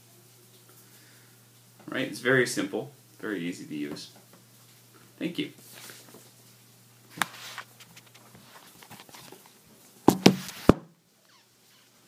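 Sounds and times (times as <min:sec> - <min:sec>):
light rubbing on phone: 0:07.1 - 0:09.4.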